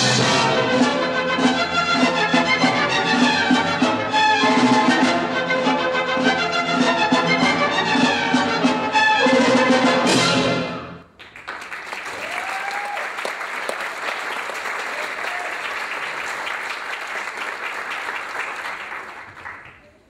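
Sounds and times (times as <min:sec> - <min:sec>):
orchestral music: 0:00.0 - 0:11.1
audience applauding: 0:11.2 - 0:20.0.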